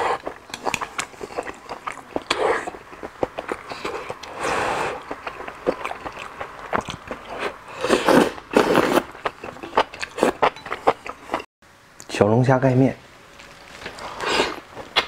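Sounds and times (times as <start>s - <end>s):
wet chewing clicks: 0.1s - 11.5s
noodles being slurped: 7.2s - 11.4s.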